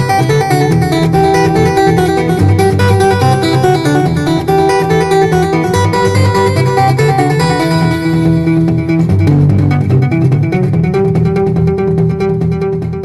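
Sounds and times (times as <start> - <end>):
guitar and bass music: 0.0 - 13.0.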